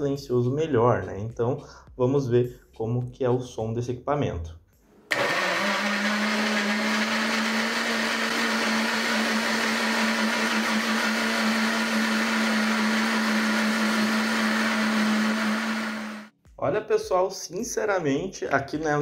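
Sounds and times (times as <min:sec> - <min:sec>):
blender running: 0:05.1 - 0:16.3.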